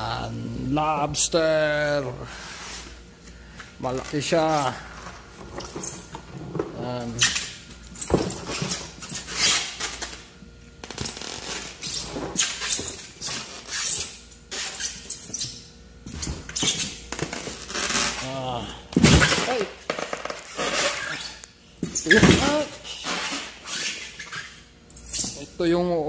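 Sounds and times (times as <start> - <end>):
styrofoam box rustling and scraping: 19.1 - 21.4.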